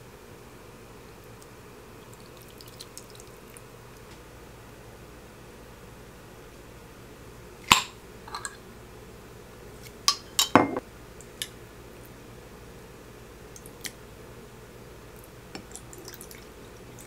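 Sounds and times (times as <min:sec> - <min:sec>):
glass and metal clinks: 0:10.4 - 0:10.8.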